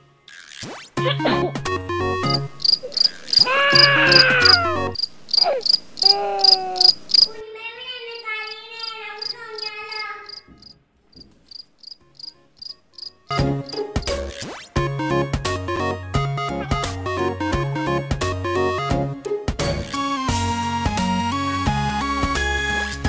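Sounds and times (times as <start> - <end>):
crickets chirping: 2.2 - 7.4, 8.1 - 14.2.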